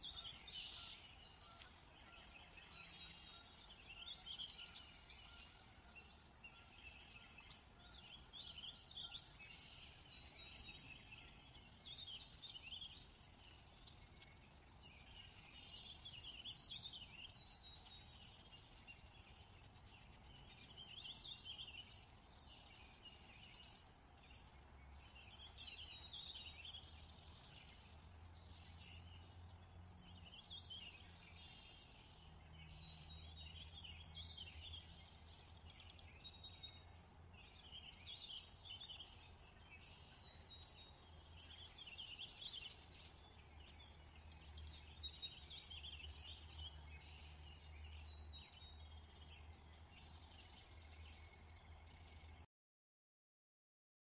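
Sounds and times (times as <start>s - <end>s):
small birds chirping and trilling: 0.0s - 52.5s.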